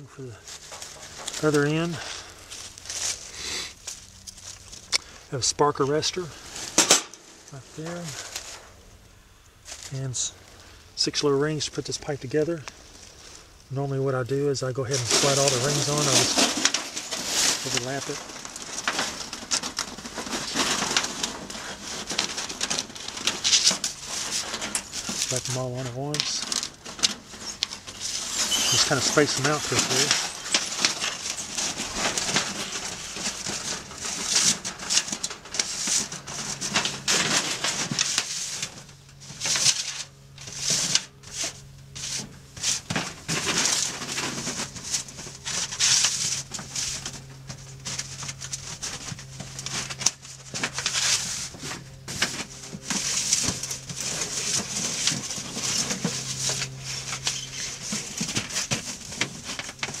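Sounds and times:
dry leaves rustling: 0.0s - 60.0s
steady low hum: 0.0s - 60.0s
metal rings scraping on pipe: 27.4s - 32.0s.

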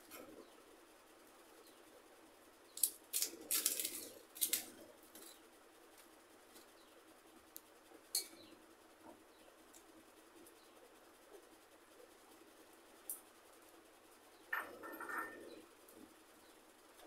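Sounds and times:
crisp crunching while chewing: 2.8s - 4.8s.

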